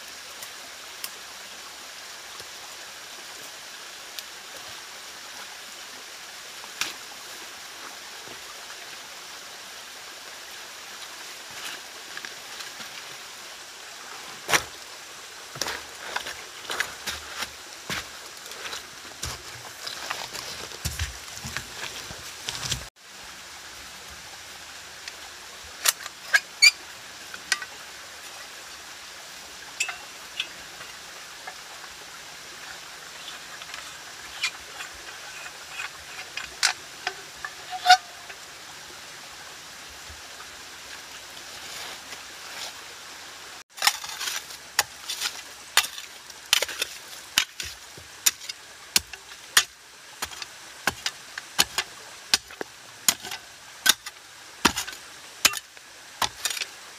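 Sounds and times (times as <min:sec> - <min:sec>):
steady outdoor hiss: 0:00.0 - 0:56.9.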